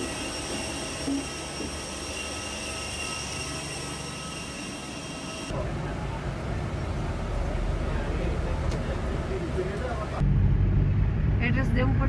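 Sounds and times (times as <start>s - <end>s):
jet aircraft engine whine: 0.0s - 11.3s
bus engine rumble: 5.5s - 12.0s.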